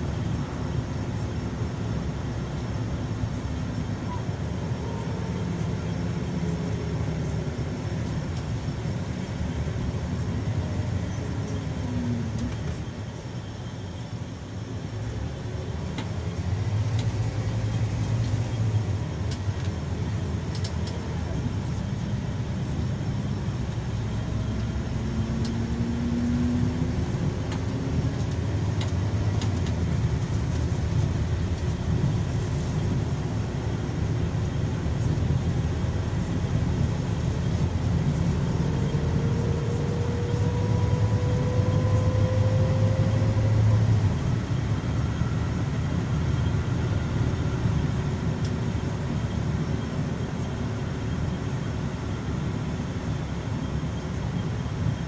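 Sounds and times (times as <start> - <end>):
coach engine and road drone: 0.0 - 55.0
faint rising whine: 36.0 - 48.8.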